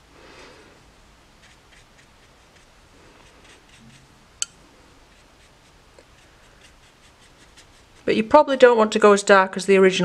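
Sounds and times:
brush strokes on paper: 1.3s - 8.2s.

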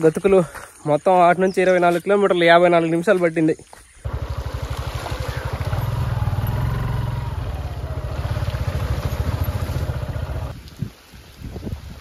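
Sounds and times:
small motorcycle engine running: 4.0s - 10.5s.

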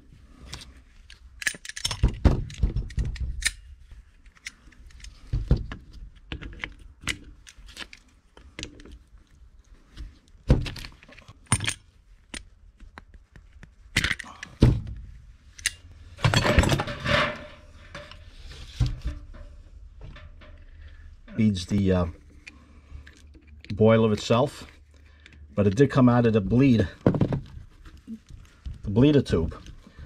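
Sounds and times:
metal clinks and rattles: 1.4s - 3.7s, 10.8s - 12.4s.

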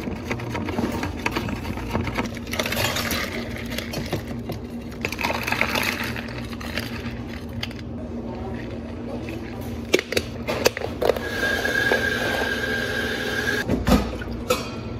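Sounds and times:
ice cubes rattling in cups: 4.9s - 7.8s.

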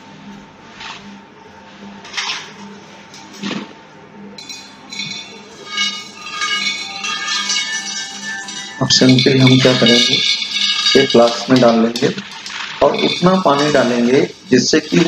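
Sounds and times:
asphalt pieces clinking on glass flask: 4.4s - 15.0s
background music: 4.4s - 15.0s.

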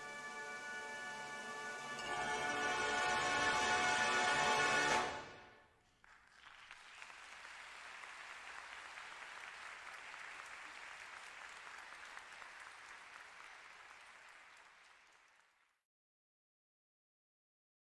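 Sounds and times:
audience applauding: 2.0s - 15.8s.

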